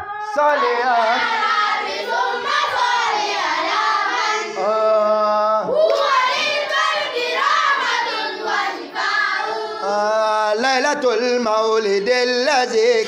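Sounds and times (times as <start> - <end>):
voices singing devotional song: 0.0 - 13.0.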